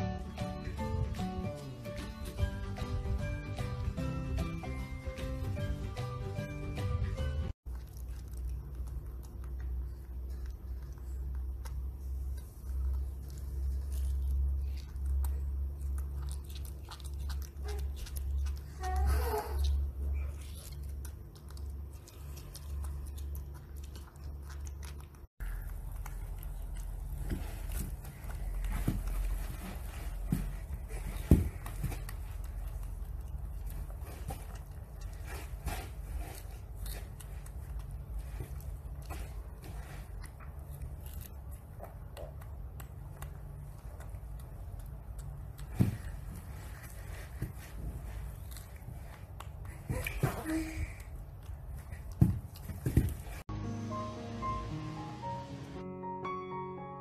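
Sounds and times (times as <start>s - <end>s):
monkey chewing fruit: 7.6s - 19.0s, 19.6s - 29.4s, 30.2s - 50.2s.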